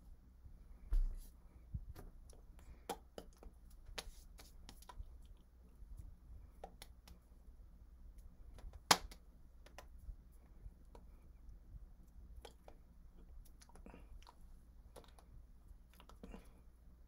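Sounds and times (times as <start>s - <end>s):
steady low hum: 0.0s - 17.0s
hands tapping and clicking: 6.6s - 7.2s, 8.5s - 10.0s.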